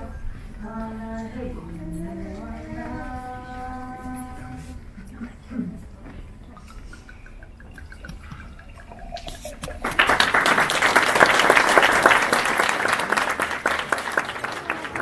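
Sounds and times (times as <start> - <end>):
crowd applauding: 9.5 - 15.0.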